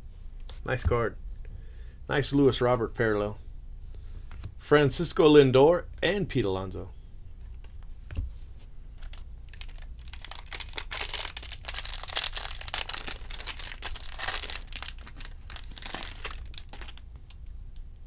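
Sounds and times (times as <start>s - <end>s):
foil wrapper crinkling: 9.0s - 17.4s.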